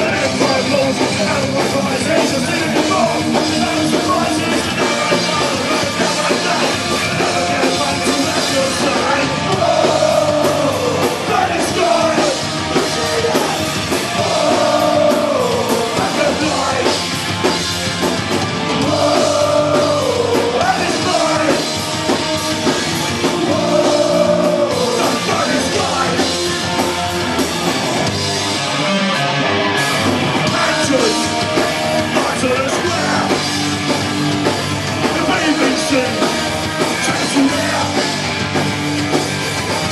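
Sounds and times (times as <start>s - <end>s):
shouted lead vocal: 0.0s - 17.1s, 18.6s - 26.8s, 30.4s - 33.9s, 35.0s - 38.3s
punk rock band playing live: 0.0s - 39.9s.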